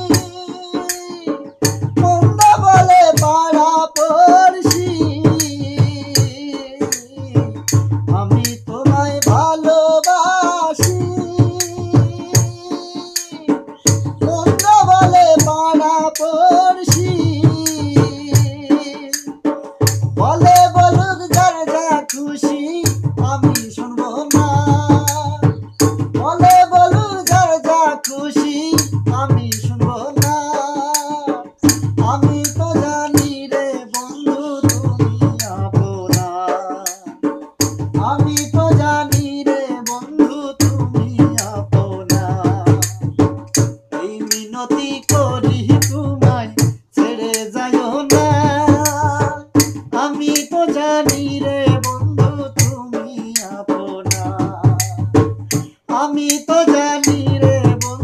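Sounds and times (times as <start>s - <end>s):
hand-played barrel drum beat: 0.0s - 58.0s
jingling percussion: 0.0s - 58.0s
man singing: 0.0s - 58.0s.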